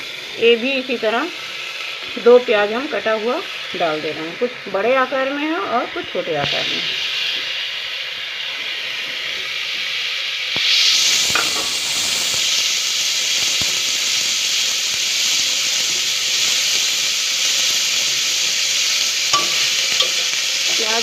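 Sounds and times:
onions sizzling in hot oil: 0.0 - 21.0.

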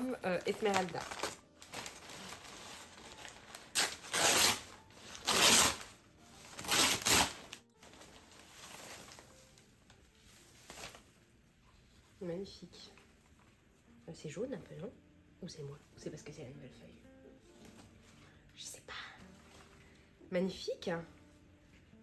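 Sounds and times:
packaging rustling and tearing: 0.4 - 11.2.

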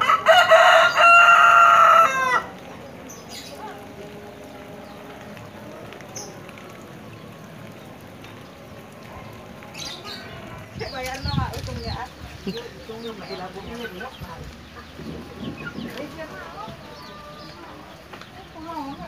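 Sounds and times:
rooster crowing: 0.0 - 2.5
light rain hiss: 0.0 - 19.0.

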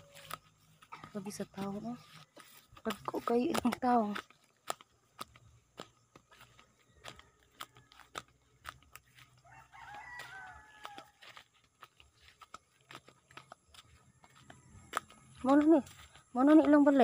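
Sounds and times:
distant rooster crowing: 0.0 - 0.5, 6.7 - 11.6
footsteps on dirt path: 0.0 - 17.0.

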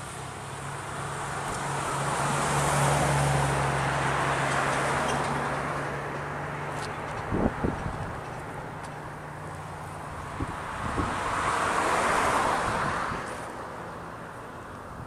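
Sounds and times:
vehicle passing: 0.9 - 14.3
wind bump on microphone: 6.8 - 8.8, 10.2 - 11.6.

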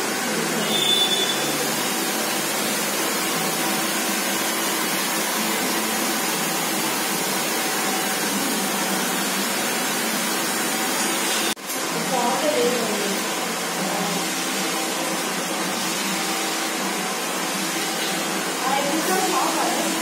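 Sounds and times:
hair dryer blowing: 0.0 - 20.0.

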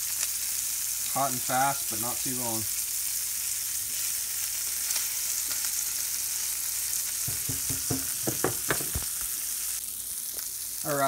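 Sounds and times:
fish sizzling in a skillet: 0.0 - 11.0
short knocks: 7.3 - 9.1.

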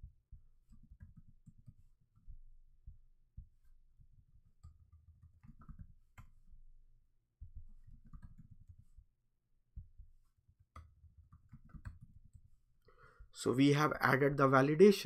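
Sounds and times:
keyboard and mouse clicks: 4.2 - 6.4, 7.6 - 8.9, 10.6 - 12.5.

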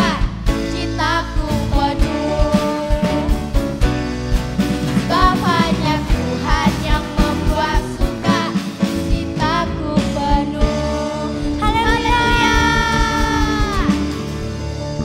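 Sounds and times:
drums steady beat: 0.0 - 15.0
live band playing: 0.0 - 15.0
girls singing: 5.1 - 14.2.

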